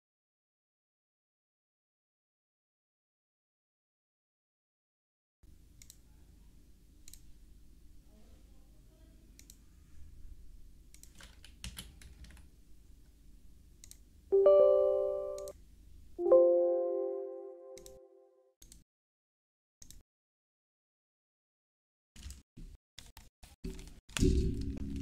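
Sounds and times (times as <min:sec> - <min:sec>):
computer mouse clicks: 0:05.8 - 0:06.0, 0:07.0 - 0:07.3, 0:09.4 - 0:09.6, 0:10.9 - 0:12.4, 0:13.8 - 0:14.0, 0:17.8 - 0:18.0, 0:19.8 - 0:20.0
keyboard typing: 0:11.0 - 0:12.5, 0:13.8 - 0:15.5
electronic computer chime: 0:14.3 - 0:15.5, 0:16.2 - 0:17.8.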